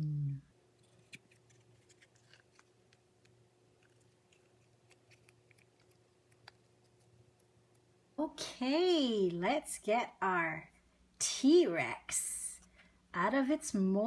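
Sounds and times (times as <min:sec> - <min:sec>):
faint hum: 0:00.0 - 0:14.0
play dough squishing: 0:00.7 - 0:07.9.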